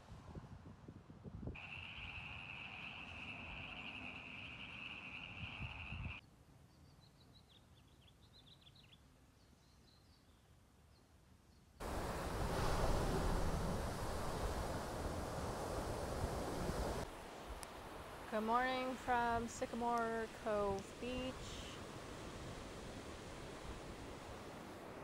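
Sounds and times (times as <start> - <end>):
ocean surf washing in: 11.8 - 25.0.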